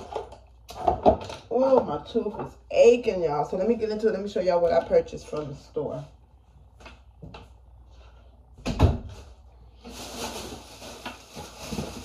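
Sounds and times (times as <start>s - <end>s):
rustling: 9.1s - 12.0s.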